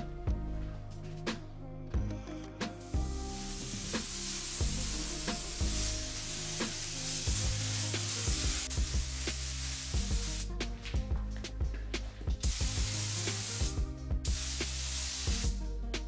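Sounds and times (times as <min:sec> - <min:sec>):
background music with beat: 0:00.0 - 0:16.0
spray gun hissing: 0:02.8 - 0:10.5, 0:12.4 - 0:15.6.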